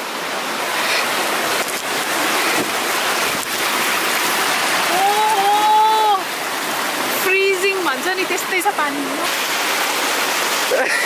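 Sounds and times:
stream rushing over rocks: 0.0s - 11.0s.

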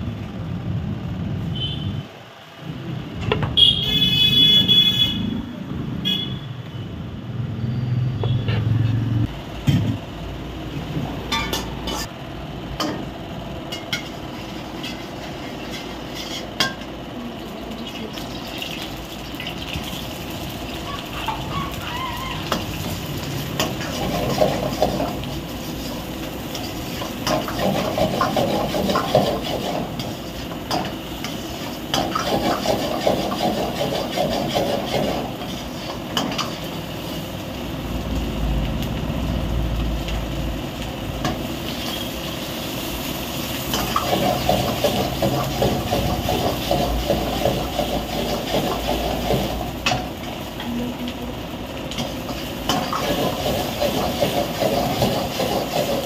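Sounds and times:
gas burner: 9.2s - 56.0s
food frying hiss: 13.9s - 56.0s
ladle scraping iron wok: 14.0s - 16.8s.

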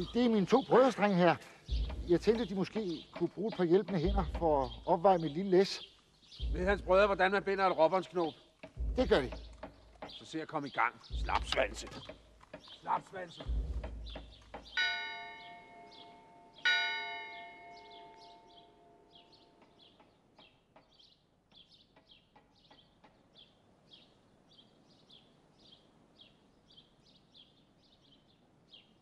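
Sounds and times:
clock bell striking: 14.8s - 19.2s.

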